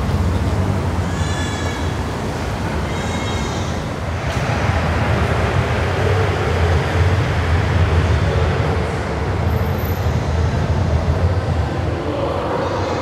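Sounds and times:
station hall ambience: 0.0s - 13.0s.

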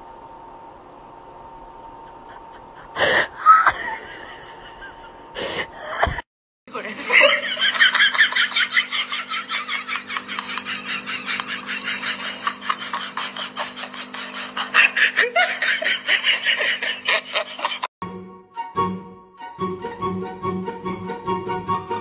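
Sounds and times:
person laughing hard: 2.0s - 6.2s, 7.0s - 17.9s.

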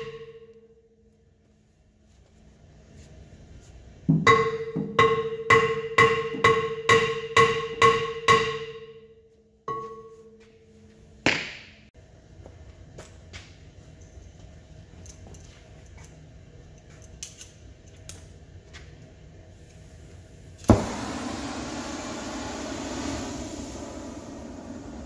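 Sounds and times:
hammer striking metal: 4.1s - 9.1s.

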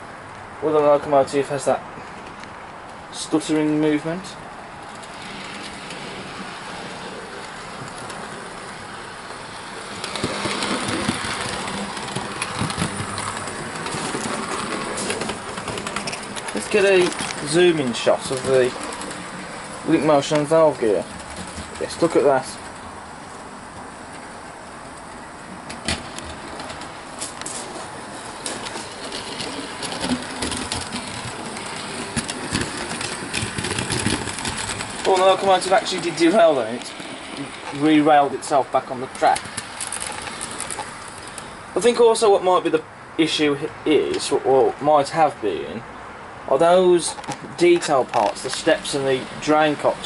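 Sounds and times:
wheels clicking over rail joints: 0.6s - 45.8s, 46.5s - 50.0s
model train motor hum: 4.8s - 25.1s, 25.9s - 41.6s.

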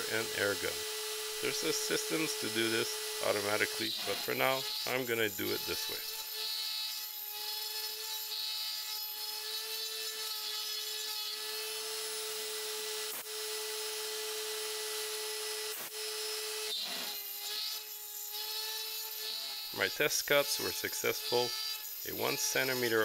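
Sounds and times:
end mill cutting metal: 0.0s - 6.3s, 16.1s - 23.0s
router spindle high whine: 0.0s - 23.0s.

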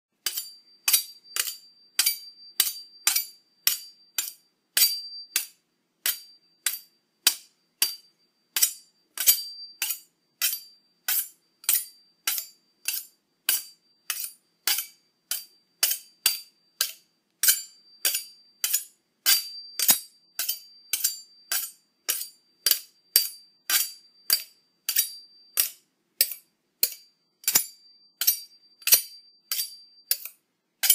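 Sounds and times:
knife being sharpened: 0.2s - 5.5s, 8.6s - 30.9s.

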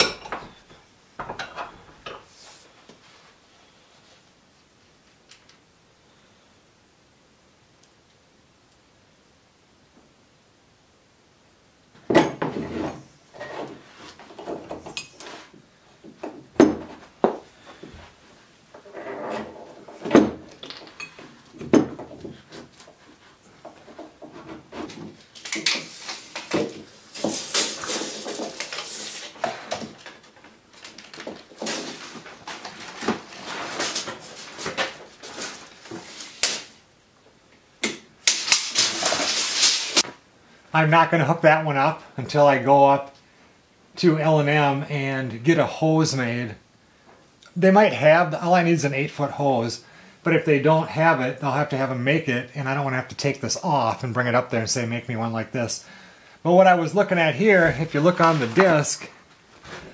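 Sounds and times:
rustling and clattering: 12.0s - 36.8s, 38.2s - 40.2s.

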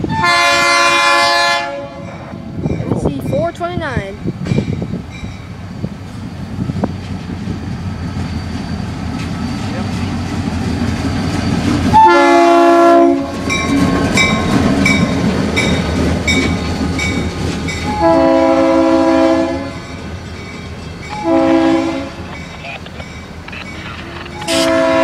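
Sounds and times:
locomotive air horn blasts: 0.0s - 2.2s, 11.9s - 13.4s, 17.9s - 19.8s, 21.1s - 22.2s, 24.4s - 25.0s
diesel locomotive engine rumbling: 0.0s - 25.0s.

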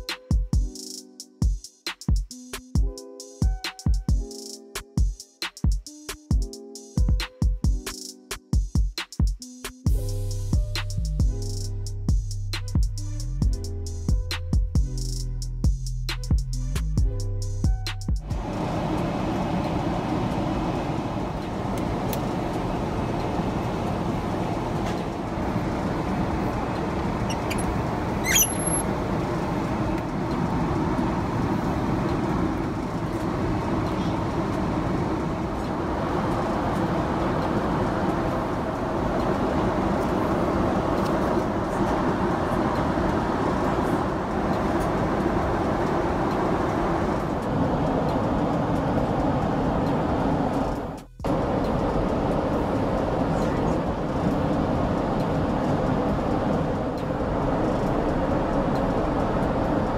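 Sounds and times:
airliner cabin noise: 18.2s - 59.9s.

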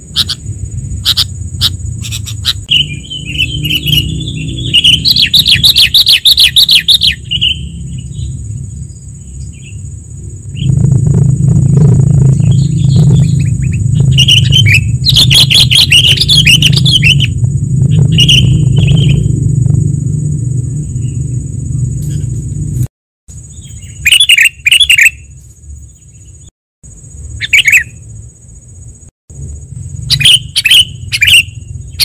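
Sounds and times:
birds chirping: 0.0s - 10.8s, 11.6s - 19.4s, 20.6s - 22.5s, 23.4s - 26.5s, 27.4s - 28.1s, 28.9s - 32.0s
low rumble: 7.3s - 22.9s
high-pitched buzz: 7.6s - 22.9s.

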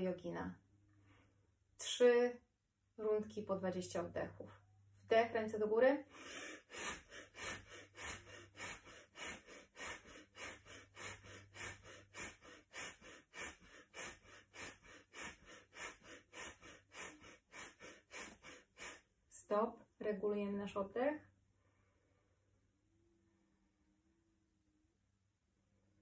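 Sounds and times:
woman breathing forcefully: 6.1s - 19.1s.

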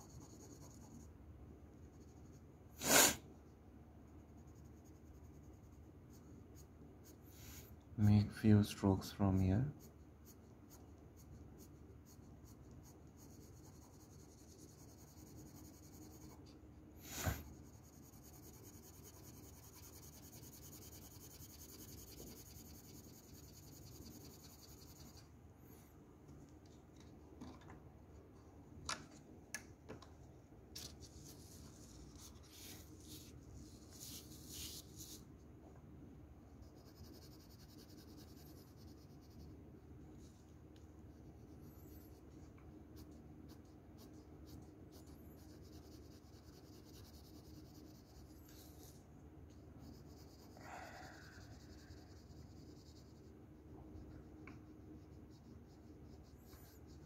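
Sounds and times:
pencil scribbling on paper: 0.0s - 1.1s, 4.1s - 7.4s, 9.3s - 25.2s, 31.2s - 35.2s, 36.6s - 39.6s, 43.0s - 49.0s, 49.8s - 57.0s.

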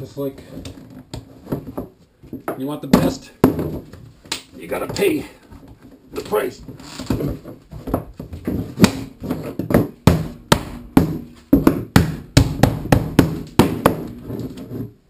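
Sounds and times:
mallet knocking on plastic: 8.8s - 14.2s.

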